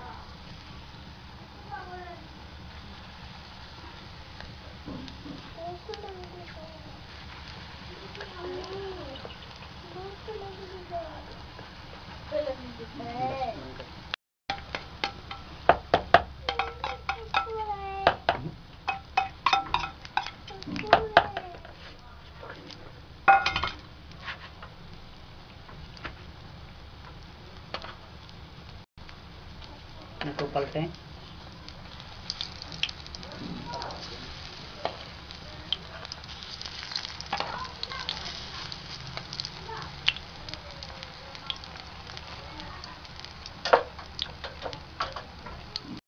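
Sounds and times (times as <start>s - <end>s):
food frying in oil: 0.0s - 46.0s
oil popping: 14.5s - 26.4s, 27.0s - 46.0s
sharp crack: 29.0s - 46.0s.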